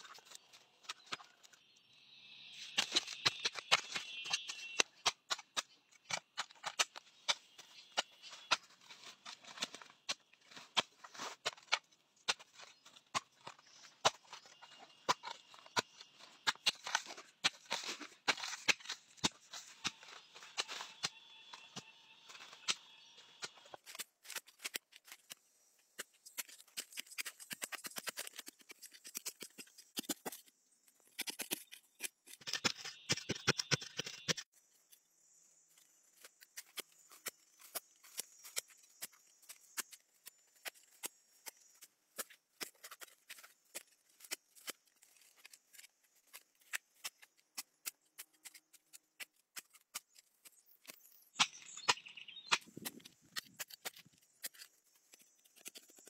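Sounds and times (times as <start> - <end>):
hoe striking soil: 2.6 - 25.1, 31.1 - 34.4
gritty scraping: 2.6 - 34.5.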